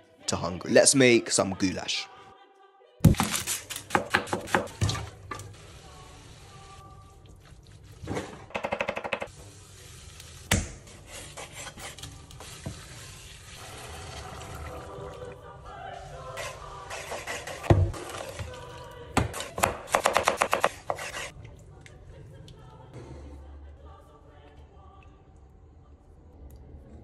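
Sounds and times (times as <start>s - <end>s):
onions sizzling in a pot: 9.3s - 14.2s.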